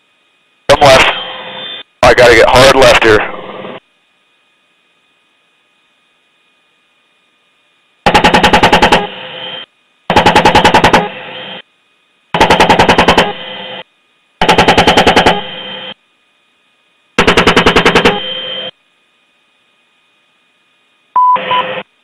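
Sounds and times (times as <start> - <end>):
chain gun firing bursts: 8.1 - 9.0, 10.1 - 11.1, 12.4 - 13.3.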